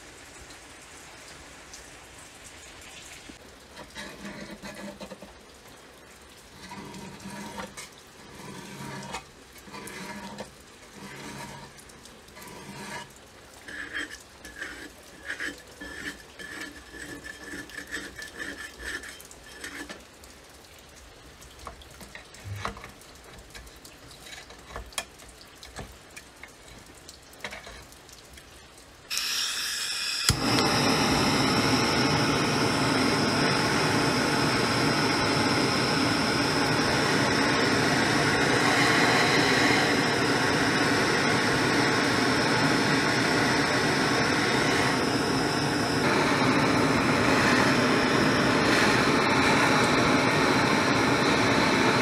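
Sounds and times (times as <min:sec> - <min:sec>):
loud steady hiss: 0:00.0 - 0:03.5, 0:29.0 - 0:52.0.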